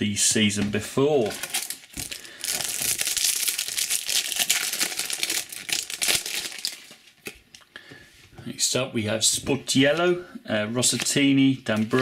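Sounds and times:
plastic wrapper tearing and crinkling: 1.2s - 7.6s.

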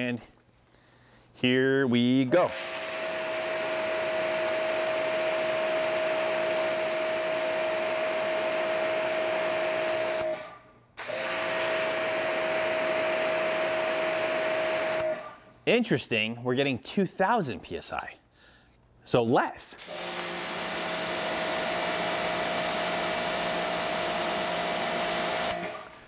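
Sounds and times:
pressure washer motor whine: 2.5s - 15.4s, 19.8s - 26.0s.

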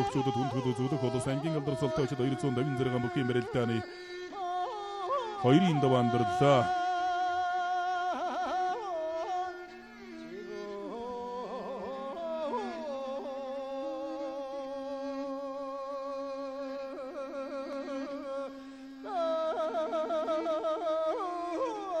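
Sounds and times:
man singing long notes: 0.0s - 3.8s, 5.4s - 7.5s.

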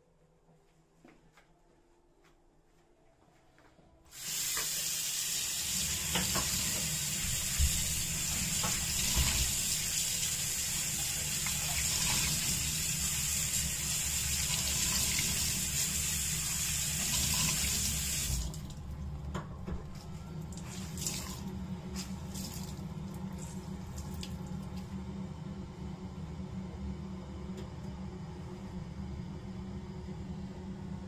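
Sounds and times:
faucet running onto cloth: 4.1s - 18.5s.

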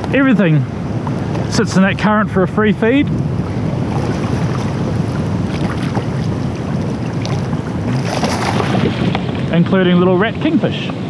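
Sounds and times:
water lapping: 0.0s - 11.0s
wind buffeting microphone: 0.0s - 11.0s
water splashing: 2.7s - 10.4s.

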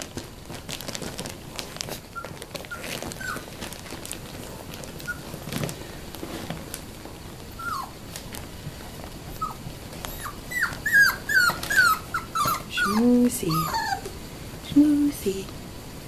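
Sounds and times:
puppies whimpering: 2.2s - 3.5s, 7.5s - 8.0s, 9.3s - 14.2s.

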